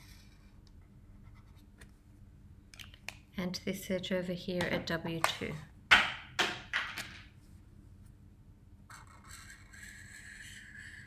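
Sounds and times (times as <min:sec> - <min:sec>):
marker scraping on paper: 0:08.9 - 0:11.0.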